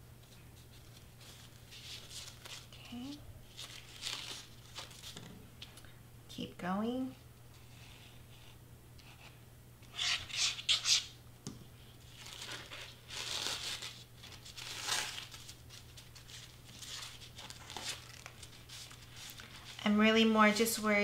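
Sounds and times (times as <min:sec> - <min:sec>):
crepe paper crinkling: 0:00.2 - 0:05.3, 0:12.0 - 0:20.7.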